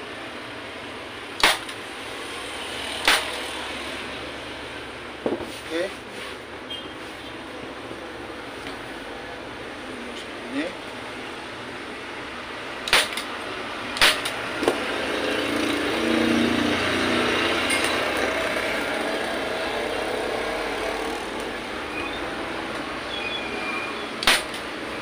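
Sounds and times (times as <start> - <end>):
passing vehicle rumble: 0.0 - 6.6, 11.0 - 25.0
staple gun clack: 12.9 - 13.3, 14.0 - 14.4, 24.2 - 24.6.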